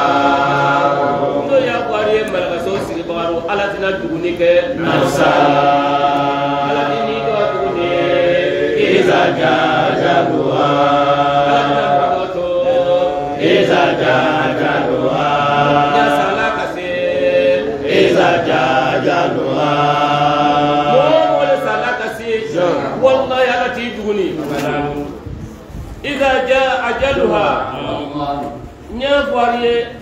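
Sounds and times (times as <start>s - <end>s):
man chanting: 0.0s - 5.7s, 20.8s - 25.1s, 26.0s - 30.0s.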